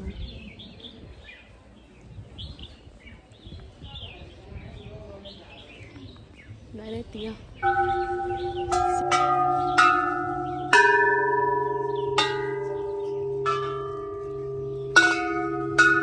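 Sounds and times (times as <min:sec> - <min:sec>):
brass temple bells ringing: 0:07.6 - 0:16.0.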